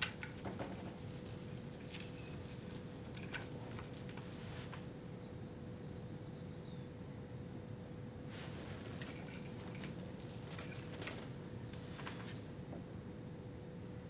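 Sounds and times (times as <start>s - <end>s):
faint hum: 0.0s - 14.0s
stethoscope rustling on clothing: 0.3s - 4.8s.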